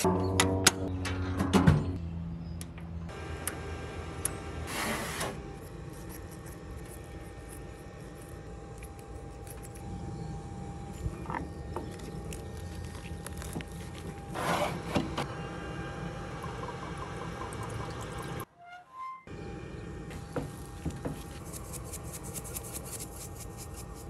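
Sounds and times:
low hum: 5.3s - 24.0s.

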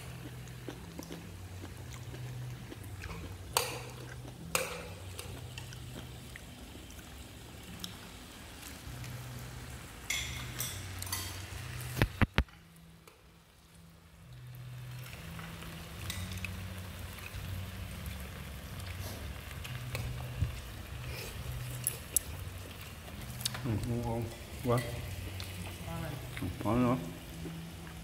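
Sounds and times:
food sizzling on a grill: 0.0s - 28.0s
dishes and utensils clinking: 10.1s - 11.5s, 23.5s - 25.1s.

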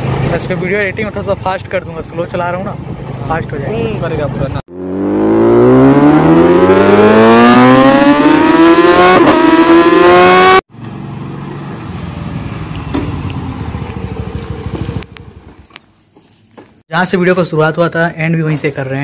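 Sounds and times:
steady engine hum: 0.0s - 16.2s
scooter engine accelerating: 4.7s - 15.8s.

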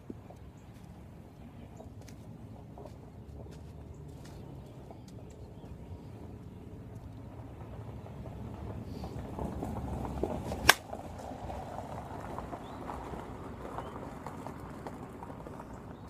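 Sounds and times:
bat hitting softball: 10.5s - 10.9s.

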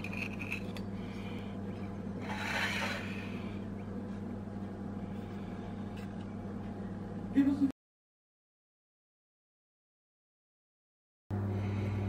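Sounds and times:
steady low hum: 0.0s - 7.7s, 11.3s - 12.0s
plate scraping on countertop: 2.2s - 3.4s.

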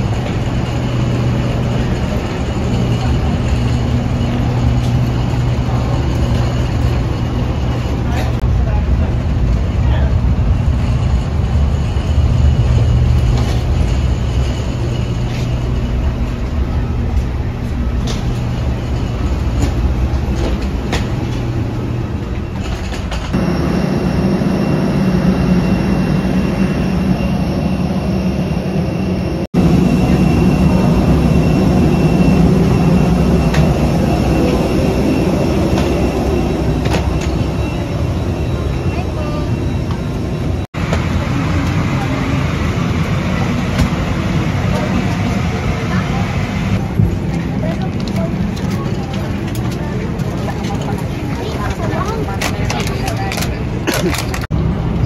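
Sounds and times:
engine rumble: 0.0s - 55.0s
faint high whine: 23.4s - 45.0s.

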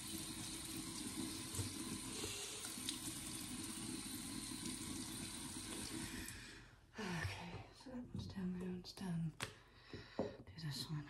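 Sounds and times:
tap water running into sink: 0.0s - 6.4s
faint knocks of handled objects: 9.4s - 10.5s.

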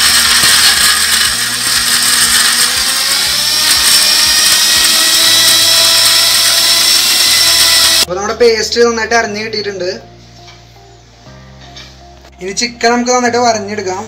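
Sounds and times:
mixer grinder running: 0.0s - 8.1s.

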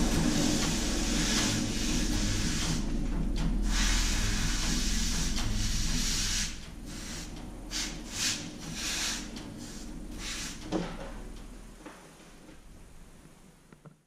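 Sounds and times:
hiss of air jet: 0.0s - 2.8s, 3.6s - 10.8s
low steady hum: 0.0s - 14.0s.

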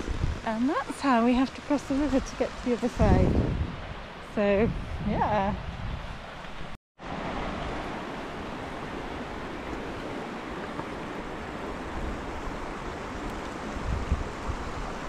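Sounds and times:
river rushing over stones: 7.0s - 15.0s.

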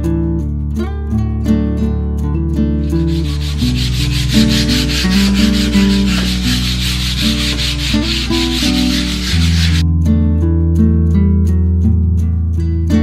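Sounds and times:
sandpaper rubbing on wood: 2.8s - 9.8s.

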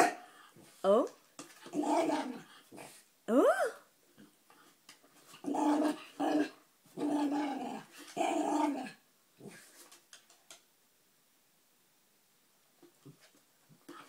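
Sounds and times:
puppy growling and grumbling: 1.7s - 2.5s, 5.4s - 9.6s.

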